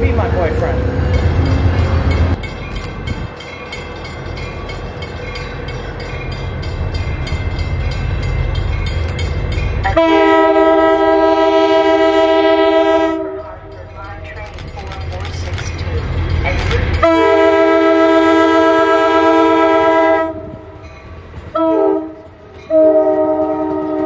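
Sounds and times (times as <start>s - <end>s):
train rumbling: 0.0s - 24.0s
train horn chord: 9.9s - 13.5s, 17.0s - 20.8s, 21.6s - 24.0s.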